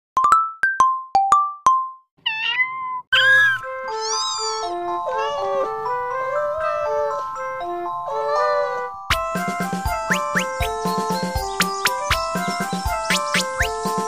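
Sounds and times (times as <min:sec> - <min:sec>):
meow-like calls: 0:02.2 - 0:05.7
cat meowing: 0:02.2 - 0:07.3
light bouncy background tune: 0:03.2 - 0:14.0.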